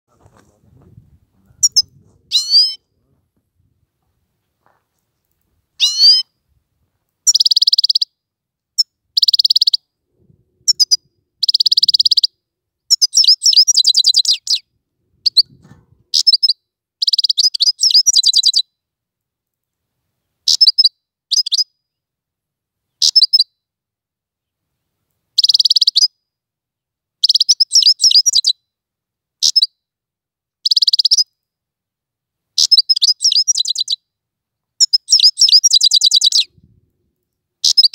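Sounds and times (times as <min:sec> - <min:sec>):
goldfinch twittering and trilling: 0:32.6 - 0:34.0, 0:34.8 - 0:36.5.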